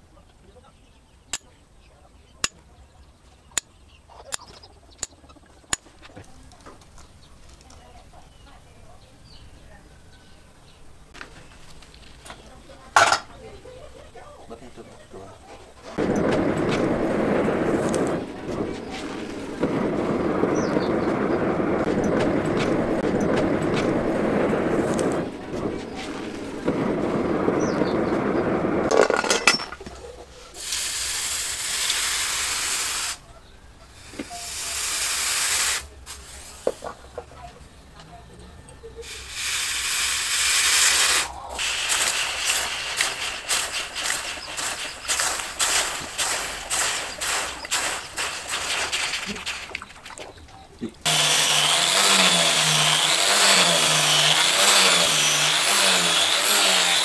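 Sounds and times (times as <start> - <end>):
charcoal crackling: 11.1 - 33.2, 33.9 - 37.6, 39.0 - 57.0
hot steel quenched in water: 13.0 - 13.4, 39.0 - 57.0
forge fire rushing: 15.2 - 33.2, 39.0 - 57.0.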